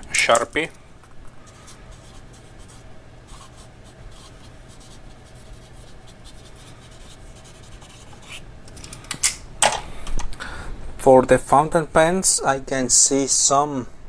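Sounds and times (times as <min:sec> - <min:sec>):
marker scratching on paper: 0:01.4 - 0:08.4.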